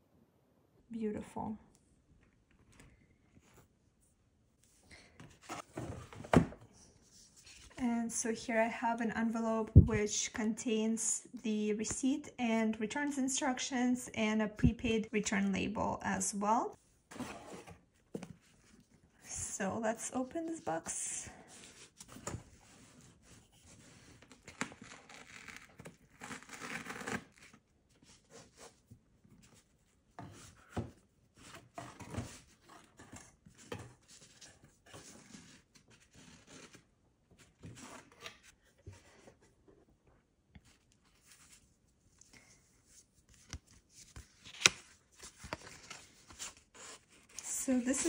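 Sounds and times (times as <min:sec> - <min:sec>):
cardboard and paper rustling: 0:05.0 - 0:07.9, 0:20.2 - 0:39.8, 0:40.6 - 0:48.0.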